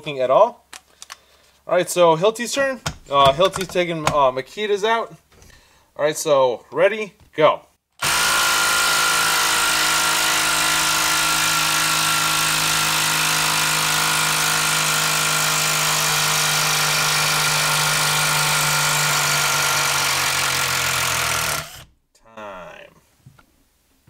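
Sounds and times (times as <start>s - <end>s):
impact driver hammering: 2.8s - 4.3s, 8.0s - 21.9s.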